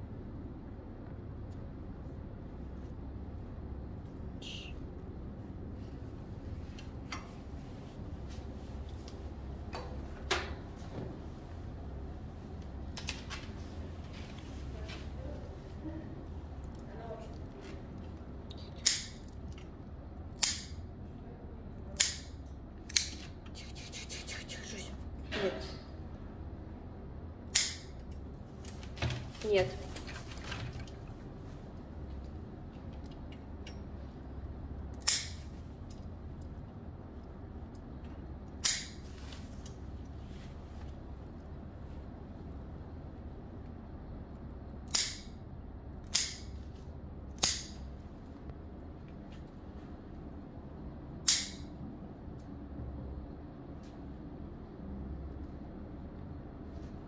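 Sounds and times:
low steady hum: 0.0s - 57.0s
nail clippers snapping: 18.5s - 19.3s, 20.4s - 20.8s, 22.0s - 23.3s, 27.6s - 28.0s, 35.0s - 35.4s, 38.6s - 39.0s, 44.9s - 45.3s, 46.0s - 46.5s, 47.4s - 47.8s, 51.3s - 51.7s.

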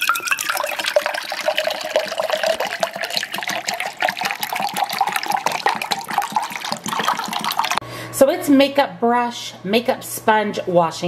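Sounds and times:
water pouring into a steel tumbler: 0.0s - 7.8s.

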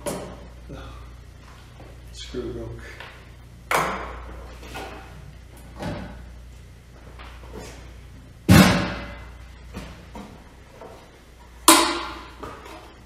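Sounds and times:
steady low hum: 0.0s - 13.0s
workbench handling knocks and clatters: 5.7s - 6.2s
loud thud with ringing tail: 8.5s - 9.2s.

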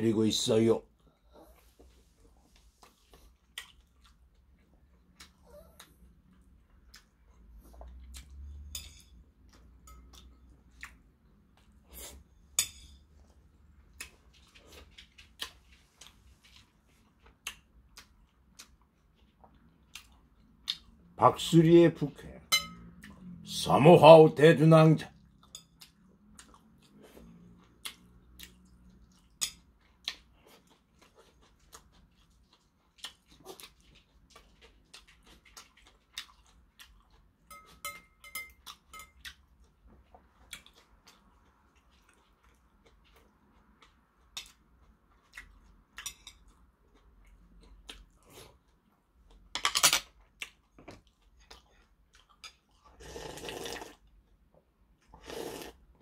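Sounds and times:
chewing: 0.9s - 8.7s, 9.4s - 12.2s, 13.1s - 21.2s, 22.8s - 23.5s, 25.1s - 56.0s
person slurping broth: 52.9s - 54.0s, 55.2s - 55.8s.

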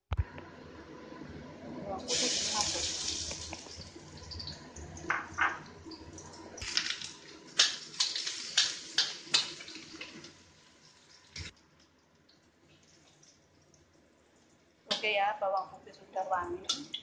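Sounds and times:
garlic sizzling in hot oil: 2.0s - 11.6s.

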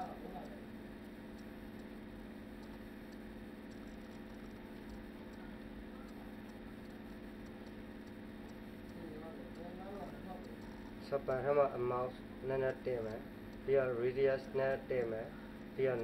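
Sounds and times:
electrical hum and hiss: 0.0s - 16.0s
computer mouse clicks: 2.6s - 5.4s, 6.0s - 9.8s, 10.4s - 11.0s.

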